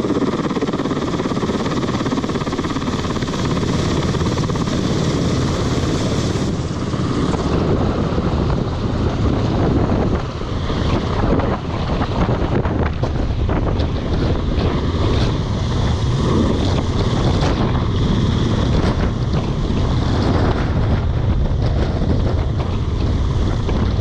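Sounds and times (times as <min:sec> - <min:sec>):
helicopter rotor chop and engine: 0:00.0 - 0:24.0.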